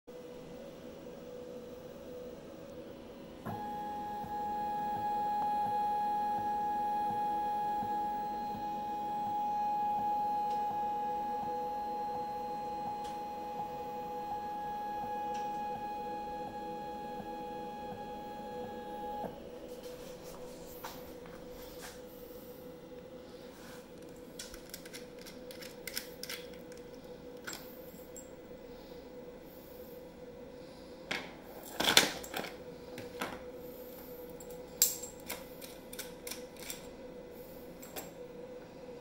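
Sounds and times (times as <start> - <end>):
low steady hum: 0.1 - 39.0
stepper motor whining: 3.5 - 19.6.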